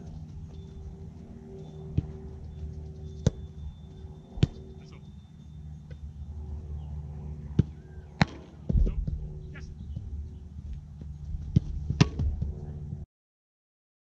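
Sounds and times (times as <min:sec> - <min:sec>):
steady low hum: 0:00.0 - 0:13.1
soccer ball being kicked: 0:01.6 - 0:04.8, 0:07.5 - 0:12.7.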